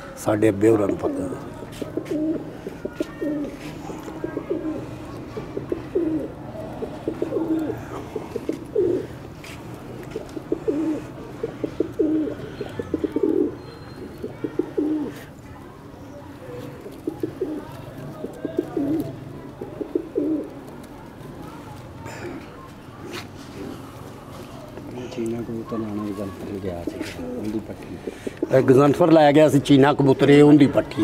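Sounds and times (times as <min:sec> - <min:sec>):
pigeons cooing: 0:00.0 - 0:15.4, 0:16.4 - 0:21.2, 0:22.0 - 0:31.0.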